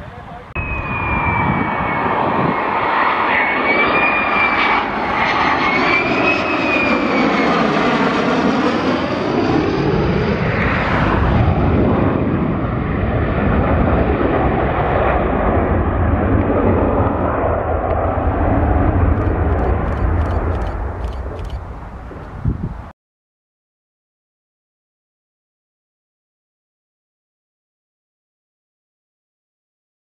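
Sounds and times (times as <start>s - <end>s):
jet engine noise: 0.0s - 22.9s
high wavering whine: 0.6s - 7.4s, 17.8s - 22.1s
deep rumble: 10.7s - 22.3s.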